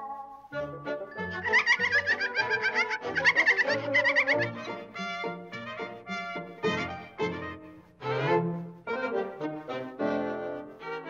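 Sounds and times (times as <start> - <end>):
orchestral cartoon music with brass: 0.1 - 11.0.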